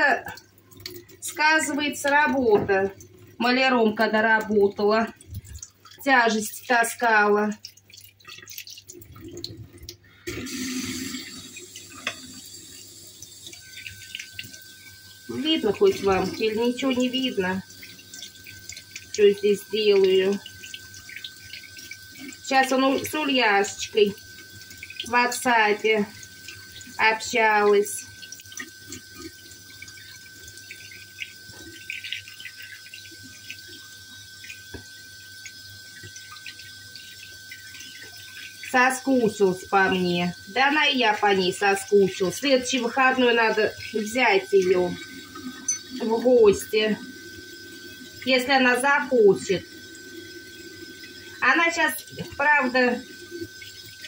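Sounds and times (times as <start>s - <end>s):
water splashing: 0.0s - 54.0s
tap running into a sink: 1.6s - 3.1s, 8.5s - 25.2s, 28.1s - 40.0s.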